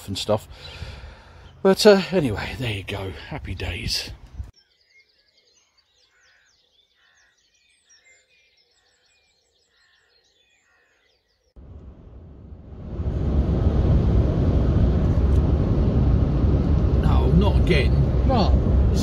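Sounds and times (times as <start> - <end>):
small birds chirping and whistling: 3.4 - 11.6
road noise inside moving car: 11.6 - 19.0.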